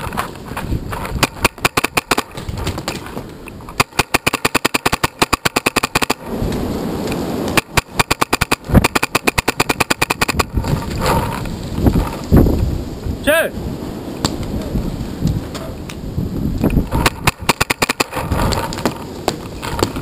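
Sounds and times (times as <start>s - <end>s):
paintball marker rapid firing: 1.2s - 3.0s, 3.8s - 6.2s, 7.6s - 10.6s, 16.9s - 19.0s.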